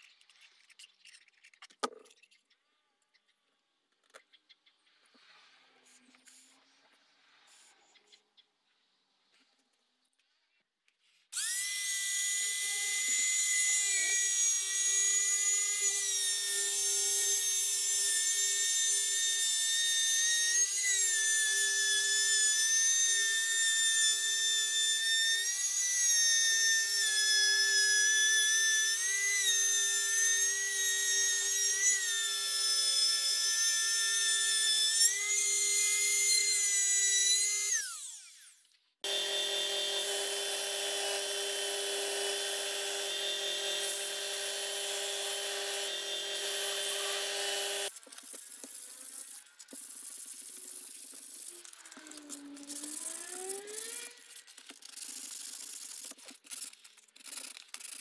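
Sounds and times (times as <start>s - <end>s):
router whining: 11.4s - 48.0s
sander motor humming: 37.8s - 47.9s.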